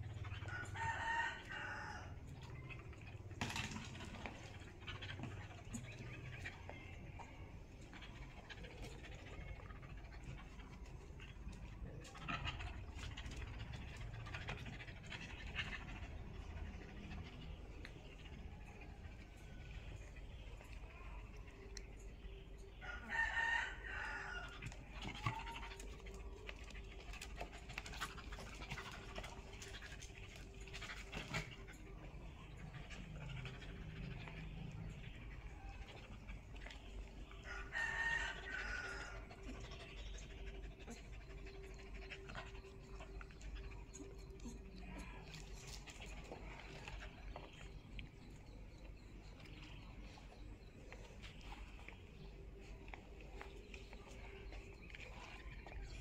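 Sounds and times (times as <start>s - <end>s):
dog panting: 4.2s - 21.0s, 24.6s - 56.0s
rooster crowing: 22.8s - 24.5s
animals scuffling on concrete: 23.1s - 31.9s, 43.9s - 48.1s.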